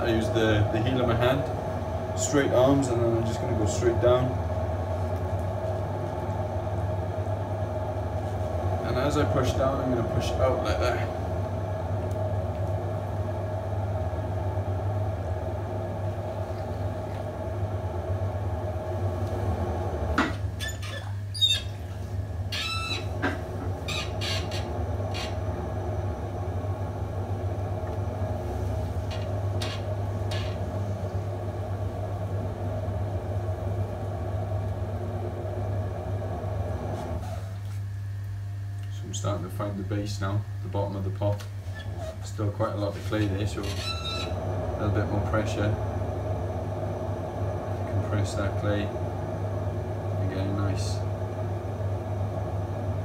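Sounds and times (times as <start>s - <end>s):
potter's wheel humming: 0.0s - 53.0s
short squeaks: 20.6s - 23.2s, 23.8s - 25.4s, 43.6s - 44.4s.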